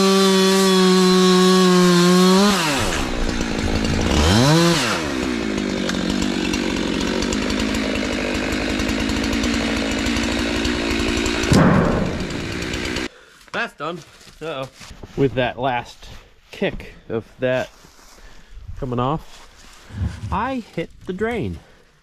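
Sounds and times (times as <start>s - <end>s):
chainsaw revving and idling: 0.0s - 13.1s.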